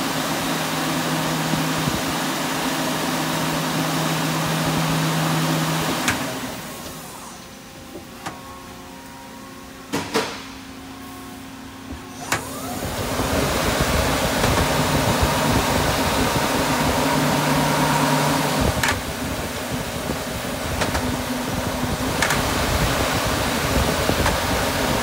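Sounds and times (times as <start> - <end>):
lathe spindle humming: 11.4 - 25.0.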